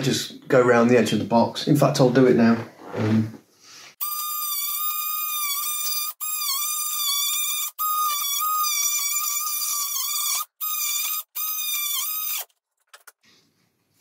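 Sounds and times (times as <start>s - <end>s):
oscillating multi-tool whine: 4.0s - 12.5s.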